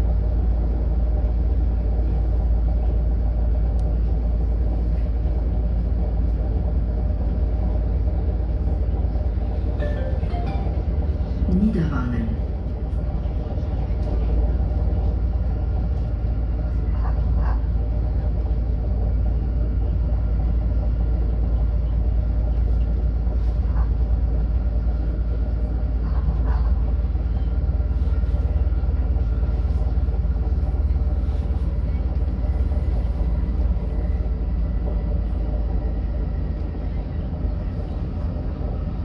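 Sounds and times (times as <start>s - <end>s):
train rumbling: 0.0s - 39.0s.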